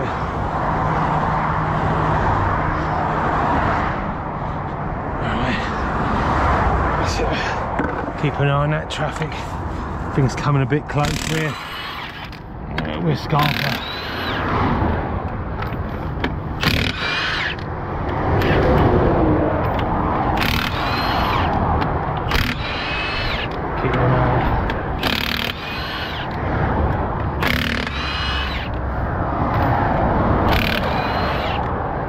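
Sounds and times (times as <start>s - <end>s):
low rumble of motorway traffic: 0.0s - 32.0s
impact wrench hammering: 15.7s - 17.6s, 22.2s - 23.6s, 24.6s - 26.4s, 27.2s - 28.8s, 30.5s - 31.7s.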